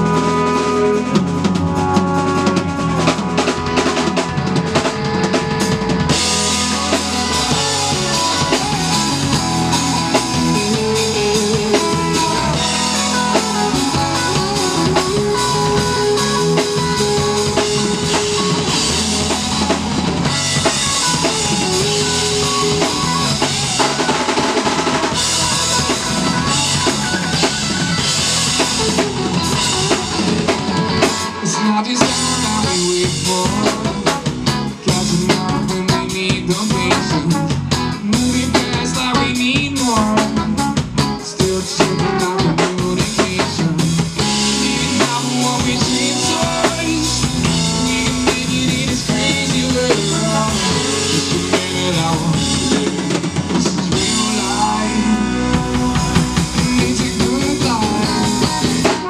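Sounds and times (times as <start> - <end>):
trombone: 0.0 - 5.3
drum kit beat: 0.0 - 59.0
live band playing: 0.0 - 59.0.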